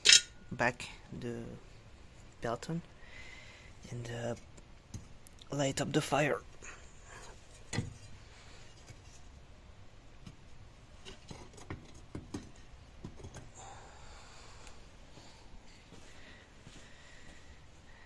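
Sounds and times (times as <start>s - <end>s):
knocks and scrapes on metal: 7.2s - 8.2s.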